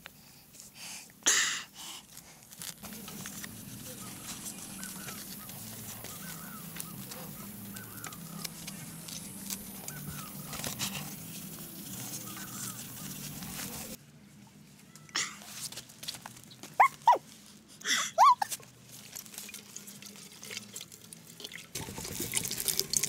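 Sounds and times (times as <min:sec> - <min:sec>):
bird chirps: 0:03.9 - 0:08.6.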